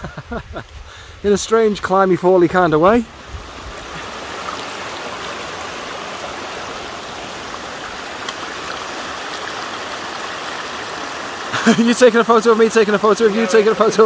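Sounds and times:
stream running over rocks: 0.4 - 14.0.

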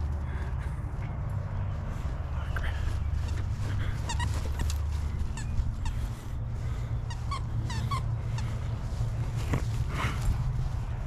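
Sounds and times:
squeaky dog toy squeaking: 7.1 - 8.1.

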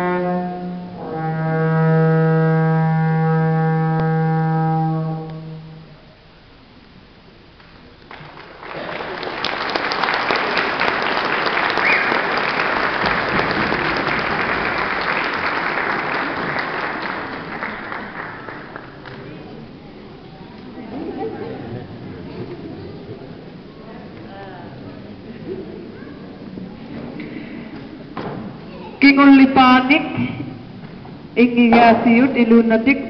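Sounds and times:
low brass note: 0.0 - 6.0
audience applauding: 7.6 - 19.6.

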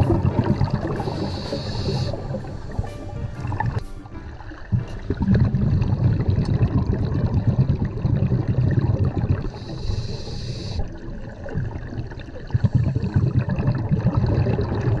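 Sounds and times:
exhaled bubbles rumbling: 0.0 - 15.0
regulator inhalation hiss: 0.8 - 3.1, 9.5 - 10.9.

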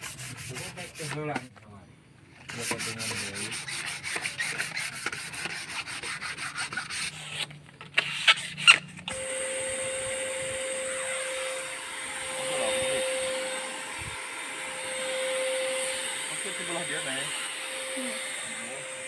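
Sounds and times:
sandpaper rubbing wood: 0.0 - 1.5, 2.4 - 8.9
spray gun blower whirring: 8.6 - 19.0.

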